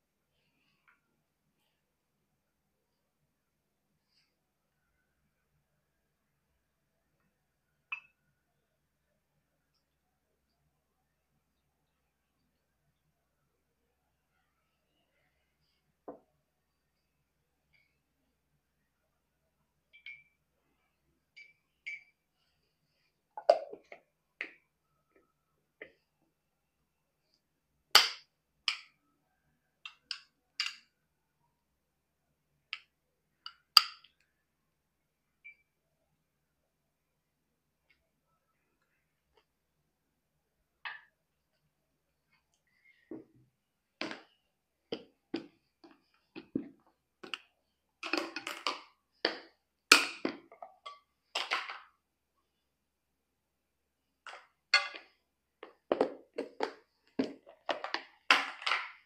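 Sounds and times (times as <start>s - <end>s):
plastic containers clicking and knocking: 54.3s - 59.0s.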